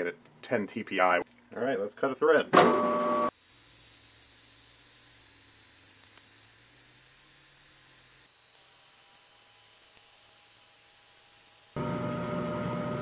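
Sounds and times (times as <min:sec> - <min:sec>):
lathe high-pitched whine: 0:03.3 - 0:11.8.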